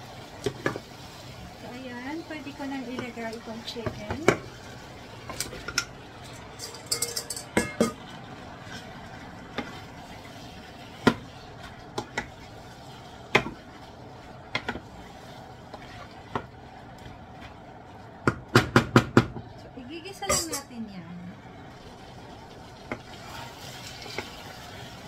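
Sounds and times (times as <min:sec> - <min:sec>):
glass bowl clinks: 0:06.6 - 0:08.0
wooden spoon knocking a pot: 0:14.5 - 0:14.8, 0:18.2 - 0:19.4.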